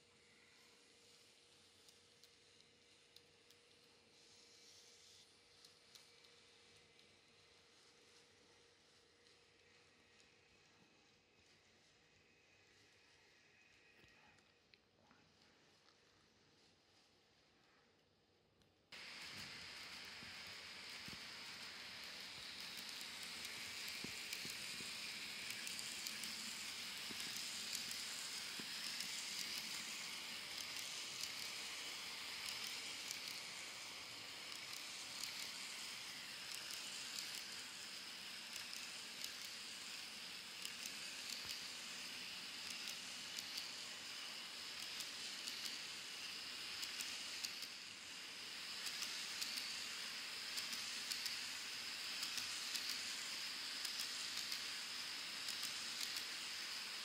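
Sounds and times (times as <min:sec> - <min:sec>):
model train wheels hissing: 0:00.0 - 0:14.4, 0:18.9 - 0:57.0
small track clicks: 0:00.6 - 0:07.2, 0:18.6 - 0:57.0.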